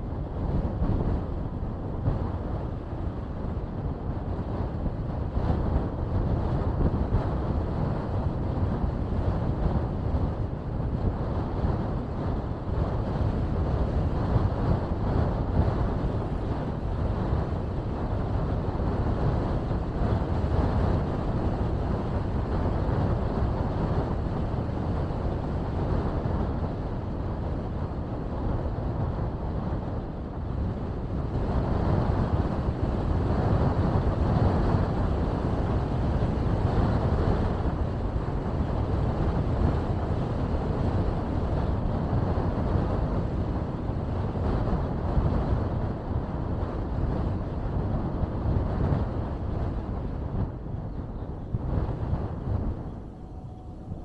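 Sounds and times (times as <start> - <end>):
car road and wind noise: 0.0 - 54.0.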